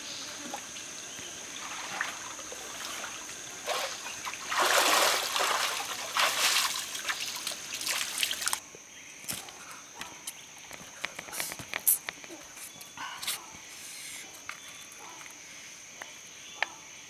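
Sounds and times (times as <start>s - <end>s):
water splashing: 1.4s - 8.6s.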